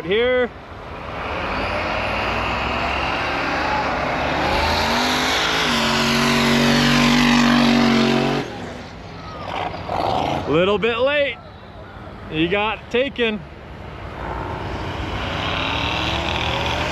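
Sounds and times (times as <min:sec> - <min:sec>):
engines at hard throttle: 0:00.8 - 0:10.8, 0:13.8 - 0:16.9.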